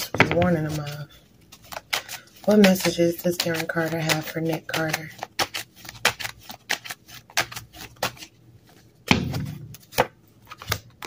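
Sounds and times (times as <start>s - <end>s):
cards shuffling clicks: 0.0s - 11.0s
dull thump: 9.1s - 9.8s.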